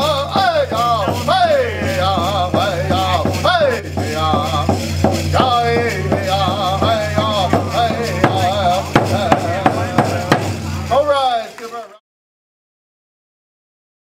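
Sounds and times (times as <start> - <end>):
man singing into a microphone: 0.0 - 10.6
hand drum beating: 0.0 - 11.0.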